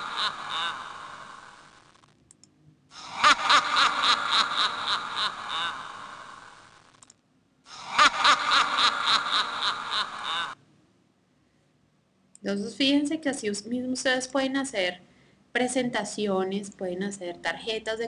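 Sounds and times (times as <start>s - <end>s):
spooky cackling laughter: 0.0s - 1.8s, 3.0s - 6.8s, 7.7s - 10.6s
mouse clicks: 2.2s - 2.6s.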